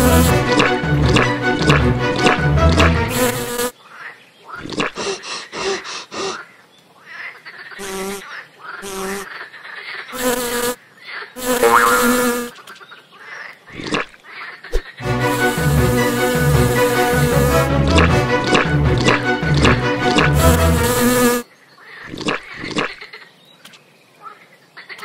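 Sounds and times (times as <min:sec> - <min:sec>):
music: 0:00.0 - 0:03.3, 0:15.0 - 0:21.2
fly buzzing: 0:00.0 - 0:03.7, 0:07.8 - 0:08.2, 0:08.8 - 0:09.3, 0:10.1 - 0:10.8, 0:11.4 - 0:12.6, 0:15.0 - 0:21.4.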